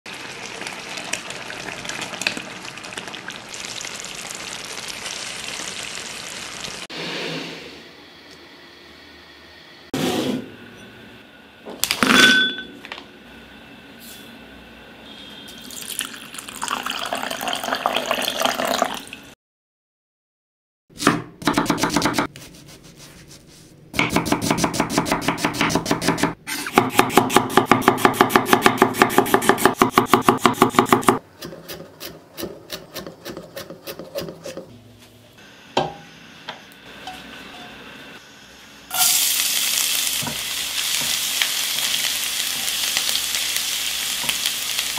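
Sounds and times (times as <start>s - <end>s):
steady hiss in pan: 3.4s - 6.9s, 38.9s - 44.9s
glass bowl clinking: 12.1s - 12.8s
knife chopping onion on wooden board: 21.0s - 22.7s, 24.0s - 34.7s.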